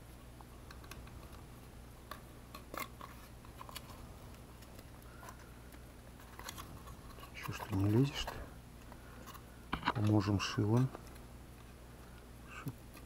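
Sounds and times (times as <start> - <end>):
steady low hum: 0.0 - 13.0
cardboard scraping and ticks: 6.2 - 8.4.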